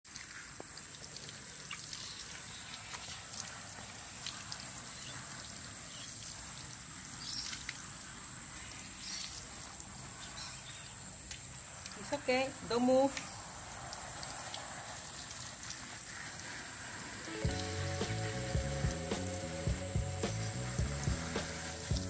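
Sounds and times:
steady high-pitched hiss: 0.1s - 22.0s
water dripping onto concrete: 0.1s - 22.0s.

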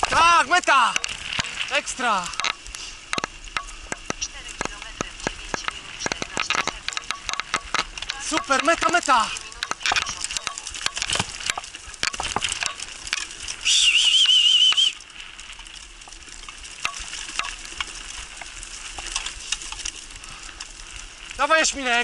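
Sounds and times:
wheels crunching on dirt trail: 0.0s - 22.0s
loud warbling whistle: 13.6s - 15.0s.

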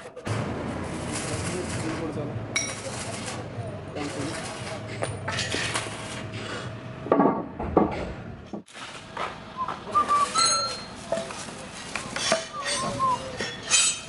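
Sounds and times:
birds chirping: 12.4s - 13.7s.

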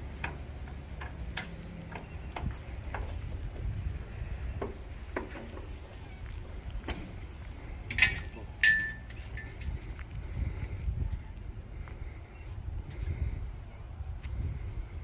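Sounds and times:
constant low rumble: 0.0s - 15.0s
sharp ringing clinks: 7.9s - 9.6s.

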